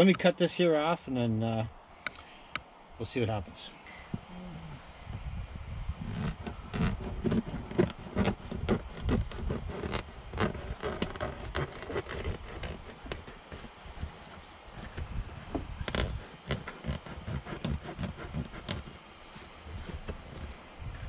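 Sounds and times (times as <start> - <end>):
mat scraping and rubbing: 6.0 - 21.0.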